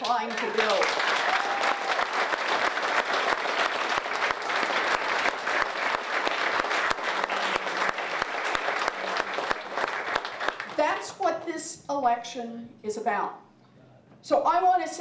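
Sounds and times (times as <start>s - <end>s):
crowd applauding: 0.0s - 10.9s.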